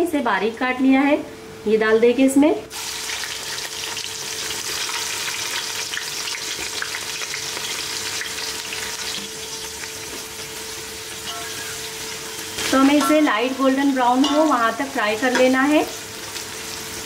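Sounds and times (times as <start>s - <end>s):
onions sizzling in hot oil: 2.7s - 17.0s.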